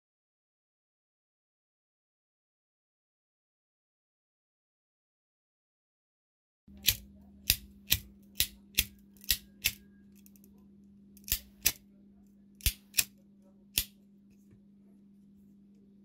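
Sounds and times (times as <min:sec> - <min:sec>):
faint low hum: 0:06.7 - 0:16.0
metal lighter clicking: 0:06.8 - 0:10.4, 0:11.2 - 0:11.8, 0:12.6 - 0:13.1.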